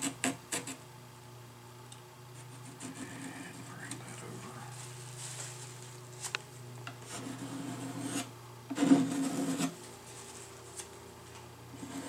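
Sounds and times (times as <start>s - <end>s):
loud rasping scrape: 7.0s - 9.8s, 11.7s - 12.0s.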